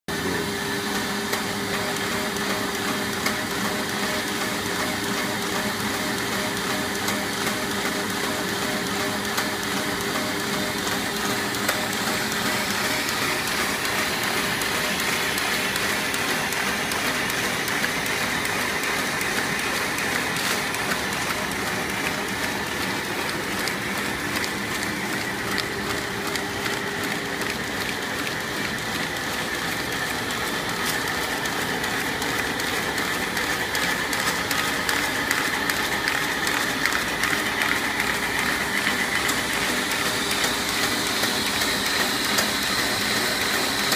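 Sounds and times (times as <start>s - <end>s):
machine hum and whine: 0.1s - 43.9s
rollers and paper clattering: 10.9s - 43.9s.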